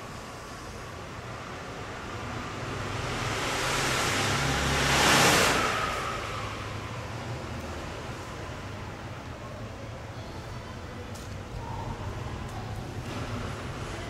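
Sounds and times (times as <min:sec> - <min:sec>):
vehicle passing by: 0:01.2 - 0:08.9.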